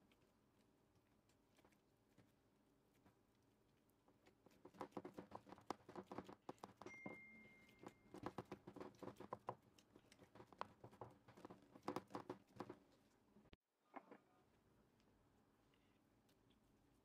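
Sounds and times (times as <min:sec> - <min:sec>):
hands patting dough: 0:04.1 - 0:13.0.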